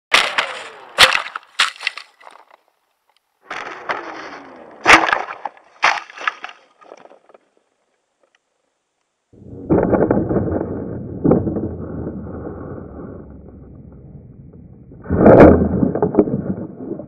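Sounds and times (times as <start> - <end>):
hard knocks and scrapes: 9.4 - 17.0.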